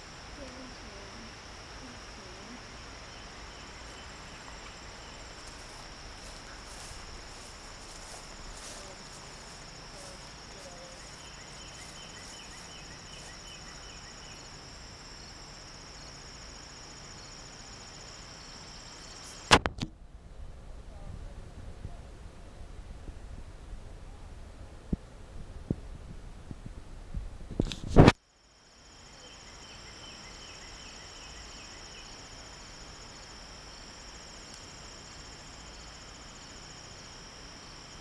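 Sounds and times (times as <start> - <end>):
insects chorus: 0.0 - 19.7, 27.8 - 38.0
faint chirps: 0.4 - 19.5.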